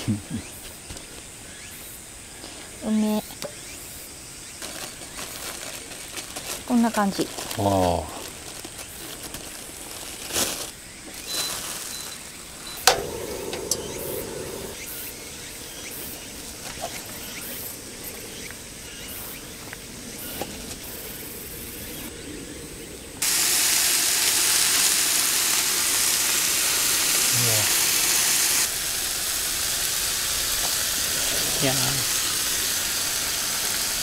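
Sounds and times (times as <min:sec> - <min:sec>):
meat sizzling on a griddle: 0:04.0 - 0:15.0, 0:23.2 - 0:34.0
plastic wrap handling: 0:04.6 - 0:12.6
sharp click: 0:12.8 - 0:14.8.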